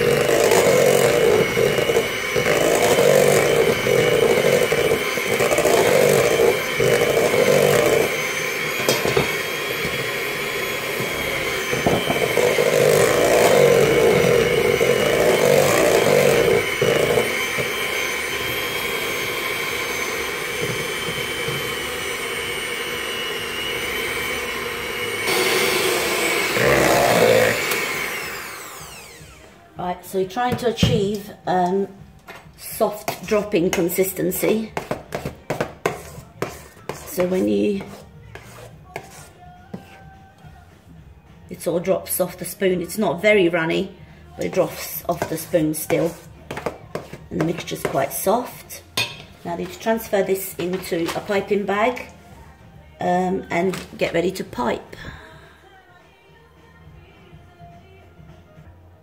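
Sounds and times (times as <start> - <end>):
dough churning in a bowl: 0.0 - 29.0
electric hand mixer whining: 0.0 - 31.8, 32.6 - 39.8, 42.4 - 48.8.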